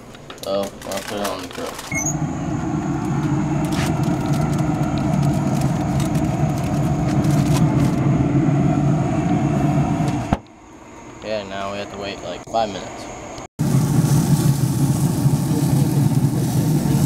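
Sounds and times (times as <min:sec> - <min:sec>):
aluminium foil crackling: 0:00.4 - 0:01.9, 0:03.0 - 0:08.0
low rumbling hum: 0:01.8 - 0:17.0.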